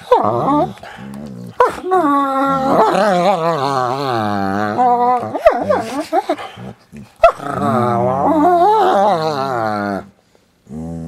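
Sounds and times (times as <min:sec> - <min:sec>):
dog growling and whining: 0:00.0 - 0:11.0.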